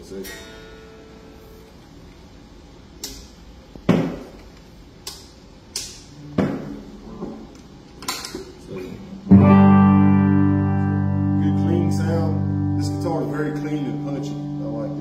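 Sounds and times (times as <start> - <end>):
low amp hum: 0.0 - 15.0
guitar handling clicks and knocks: 7.3 - 8.6
electric guitar chord: 9.1 - 15.0.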